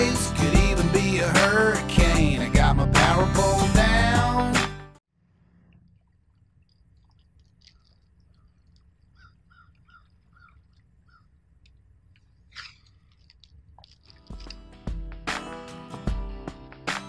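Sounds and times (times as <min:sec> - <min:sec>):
bird calling: 0:07.6 - 0:11.4.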